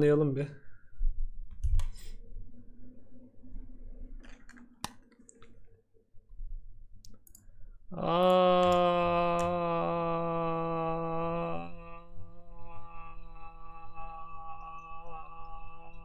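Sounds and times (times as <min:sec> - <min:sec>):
faint hum: 0:00.0 - 0:16.0
sharp clicks: 0:07.0 - 0:07.5
loud droning tone: 0:09.5 - 0:16.0.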